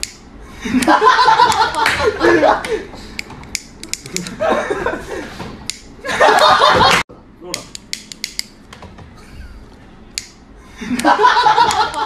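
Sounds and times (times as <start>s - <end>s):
sharp clicks: 3.2s - 4.3s, 7.5s - 8.8s.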